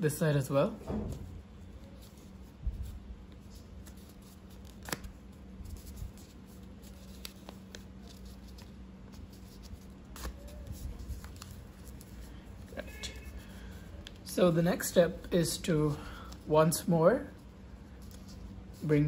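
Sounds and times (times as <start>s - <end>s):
paper rustling and crinkling: 1.0s - 14.3s.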